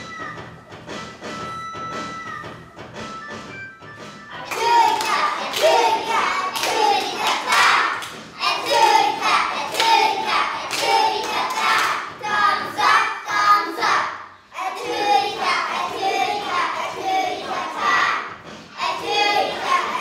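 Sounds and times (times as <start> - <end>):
hand claps: 4.4 - 12.1
children singing together: 4.4 - 20.0.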